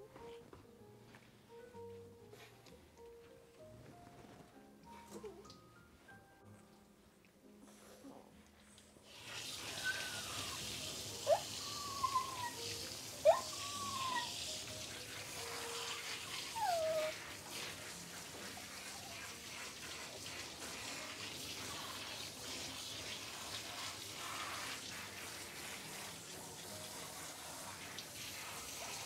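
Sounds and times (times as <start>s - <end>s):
water running and splashing: 9.0s - 29.0s
dog whimpering: 9.7s - 14.4s, 16.3s - 17.2s.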